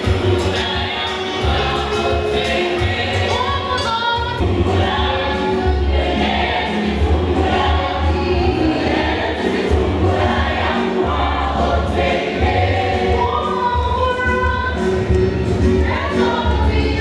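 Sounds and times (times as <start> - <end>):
choir singing a gospel song: 0.0 - 17.0.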